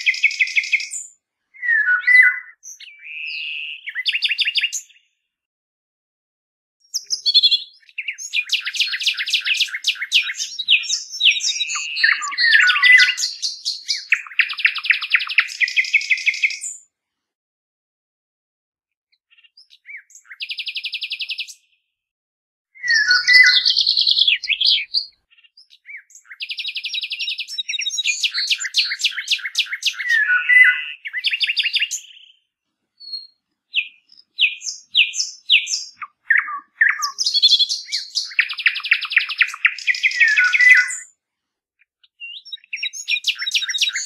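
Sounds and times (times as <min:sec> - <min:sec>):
songbirds singing: 0:00.0 - 0:05.3, 0:06.8 - 0:16.9, 0:19.1 - 0:21.9, 0:22.8 - 0:41.2, 0:41.8 - 0:44.0.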